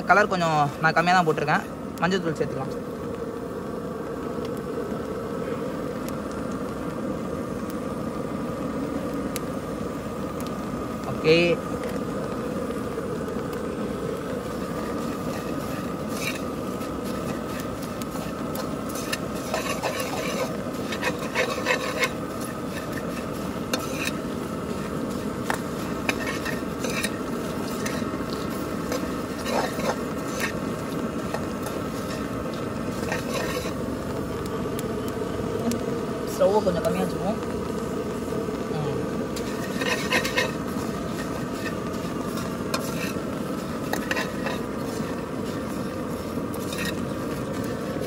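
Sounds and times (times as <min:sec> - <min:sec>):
steady hum: 0:00.0 - 0:48.0
dry rustling of puffed rice: 0:10.8 - 0:48.0
spoon scraping steel pan: 0:18.9 - 0:24.2, 0:25.5 - 0:30.6, 0:33.0 - 0:33.8, 0:39.4 - 0:45.2.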